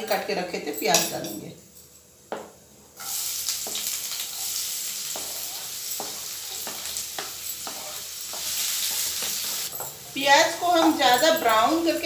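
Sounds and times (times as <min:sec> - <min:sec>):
onion sizzling in hot oil: 0:02.5 - 0:12.0
wooden spatula scraping: 0:03.0 - 0:11.7.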